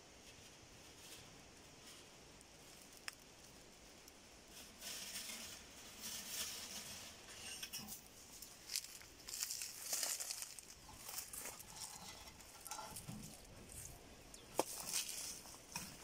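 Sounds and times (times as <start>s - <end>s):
footsteps crunching dry leaves: 8.2s - 16.0s.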